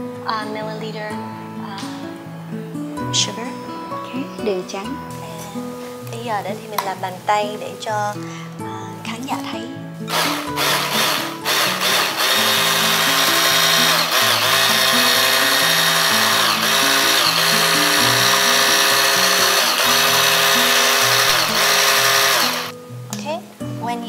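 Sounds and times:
background music: 0.0 - 24.0
stick blender whisking cream: 10.1 - 22.7.

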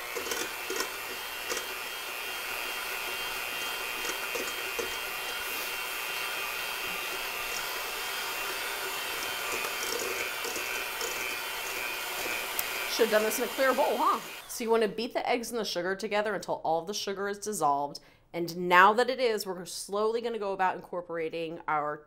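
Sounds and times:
electric hand mixer running: 0.0 - 14.7.

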